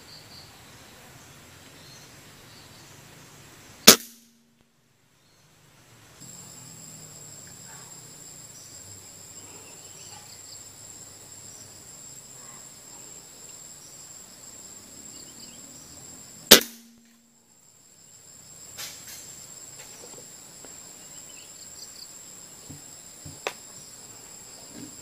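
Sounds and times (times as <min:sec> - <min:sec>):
rifle shot: 0:03.8 - 0:04.4, 0:16.5 - 0:17.1
high-pitched insect buzz: 0:06.2 - 0:25.0.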